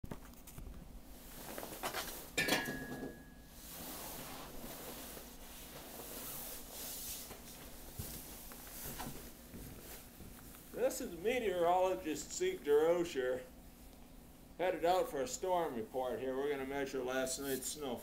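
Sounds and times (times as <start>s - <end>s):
rustling and handling noise: 0.1s - 11.8s.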